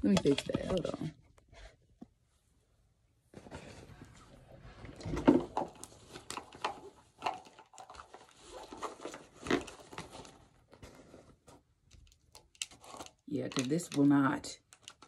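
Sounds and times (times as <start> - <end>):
small items rummaged through: 4.8 - 15.0.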